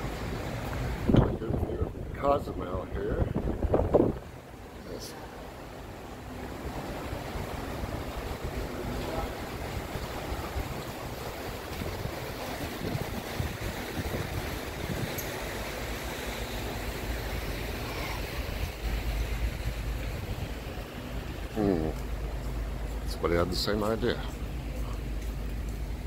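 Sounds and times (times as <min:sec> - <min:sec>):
wind buffeting microphone: 0:00.6 - 0:04.6, 0:06.7 - 0:21.5.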